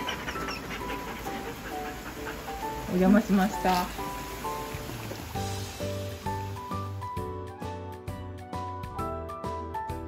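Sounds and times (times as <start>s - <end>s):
dog panting: 0.0s - 4.8s
background music with held notes: 0.0s - 10.0s.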